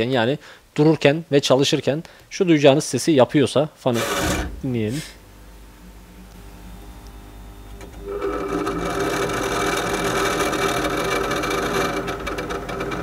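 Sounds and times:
fan motor rattling buzz: 4.0s - 6.9s, 7.5s - 13.0s.

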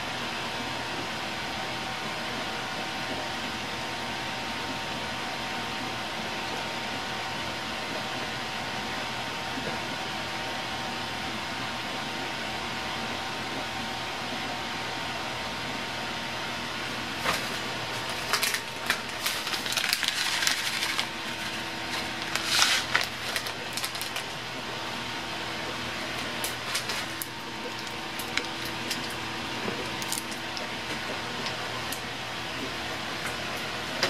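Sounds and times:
room hiss and hum: 0.0s - 34.0s
sesame seeds rattling into bowl: 18.1s - 21.1s.

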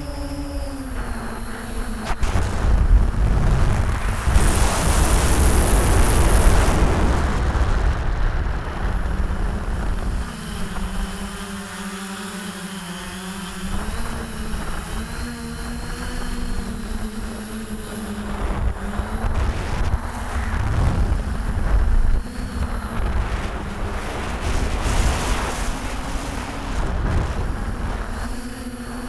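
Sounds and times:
drone propellers humming: 0.0s - 29.0s
wind buffeting microphone: 2.0s - 11.2s, 18.0s - 28.8s.

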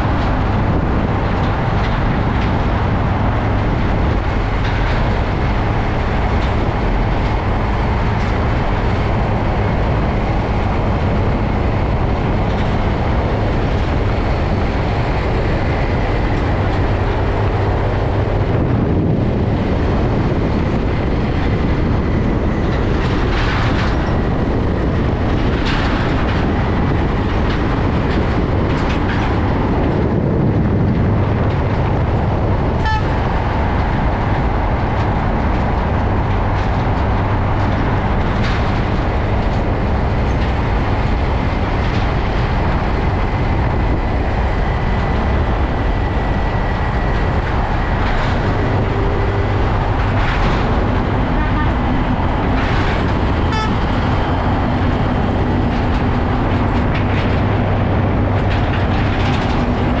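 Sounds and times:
truck diesel engine rumble: 0.0s - 60.0s
tyres on the road: 0.0s - 60.0s.

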